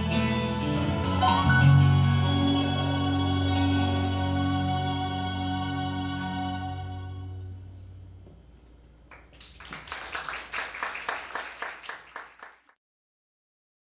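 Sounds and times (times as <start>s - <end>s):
audience applause: 9.1s - 12.8s.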